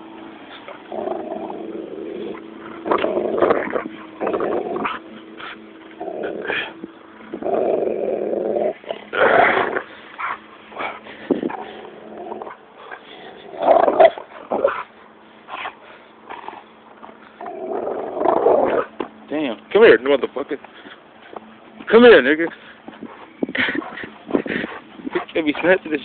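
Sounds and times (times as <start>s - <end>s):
dog growling in play: 0.6s - 14.9s, 15.6s - 19.0s.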